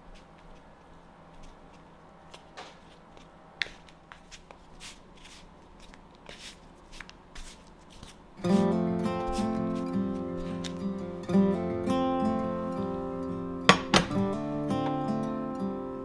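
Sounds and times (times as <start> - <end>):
acoustic guitar music: 8.4 - 16.0.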